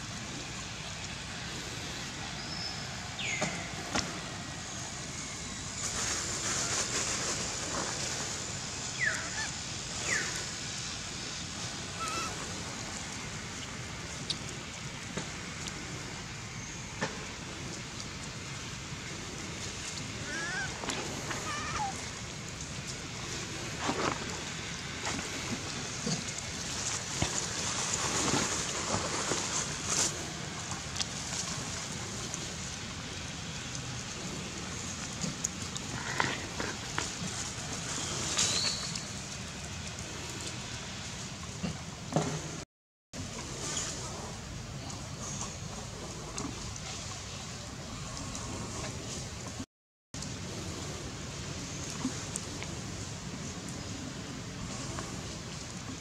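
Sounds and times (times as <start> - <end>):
steady hiss: 0.0 - 42.6.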